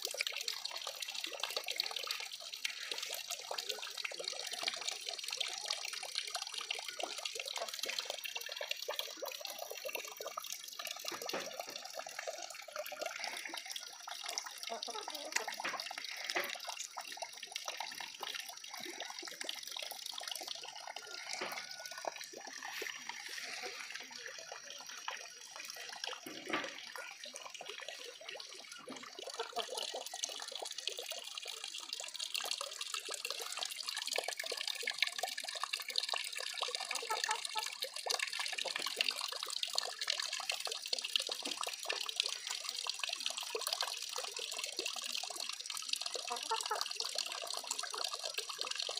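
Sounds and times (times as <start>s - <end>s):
water trickling and splashing: 0.0s - 48.9s.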